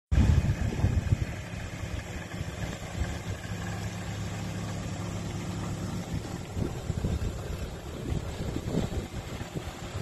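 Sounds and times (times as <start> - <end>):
wind buffeting microphone: 0.1 - 3.7, 5.6 - 10.0
pickup engine idling: 0.2 - 10.0.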